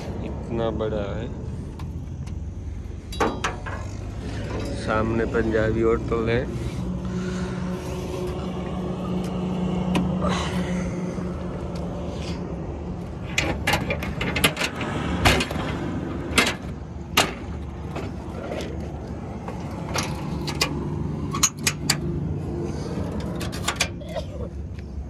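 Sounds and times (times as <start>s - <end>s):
engine hum: 0.0s - 25.0s
metal grille clanking shut: 3.1s - 5.0s, 13.2s - 18.8s.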